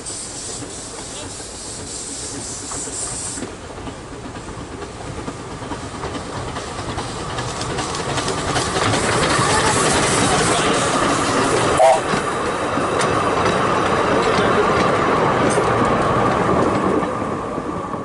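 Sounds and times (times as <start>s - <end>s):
steam hissing: 0.0s - 14.2s
train wheels clicking on rails: 0.0s - 18.0s.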